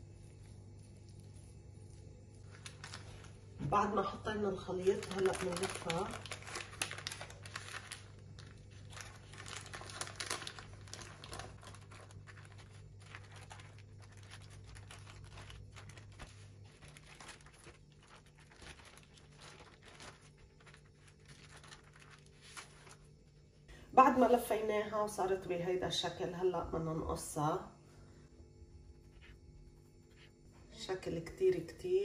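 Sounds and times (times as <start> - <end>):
baking paper crinkling: 0.0 - 23.6.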